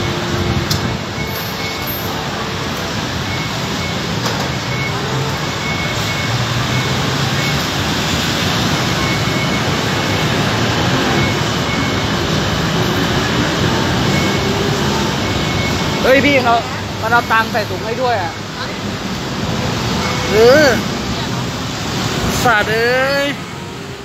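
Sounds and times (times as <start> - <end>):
street traffic: 0.0 - 24.0.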